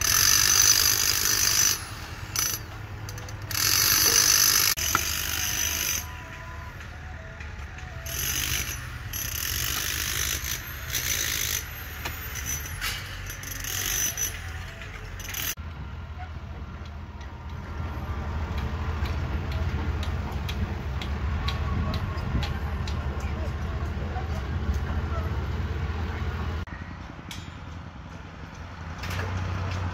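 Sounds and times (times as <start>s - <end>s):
high-pitched metallic squealing: 0.0s - 6.7s, 8.0s - 16.3s
excavator diesel engine rumble: 1.2s - 29.9s.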